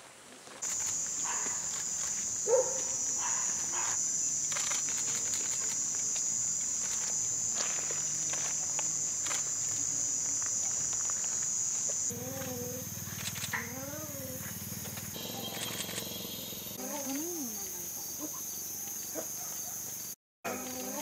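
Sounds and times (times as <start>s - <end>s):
insects trilling: 0.6s - 21.0s
faint clicks: 12.3s - 16.1s.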